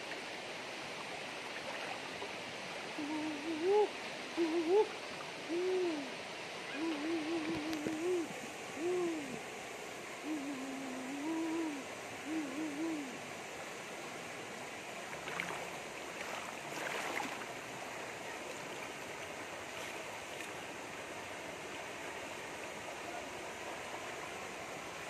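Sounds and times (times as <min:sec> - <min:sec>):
rocky stream flowing: 0:00.0 - 0:25.0
low wavering hooting call: 0:03.0 - 0:09.6, 0:10.2 - 0:13.4.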